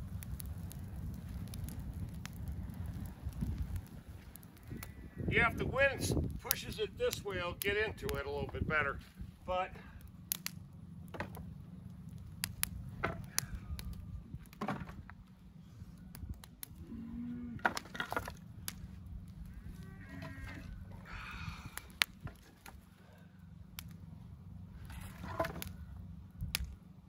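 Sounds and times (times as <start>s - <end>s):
wind rumble on microphone: 0.0s - 10.1s, 11.7s - 17.6s, 18.2s - 22.5s, 23.8s - 26.8s
fire crackling: 0.0s - 27.0s
wooden boards clattering: 14.6s - 15.0s, 17.6s - 18.4s.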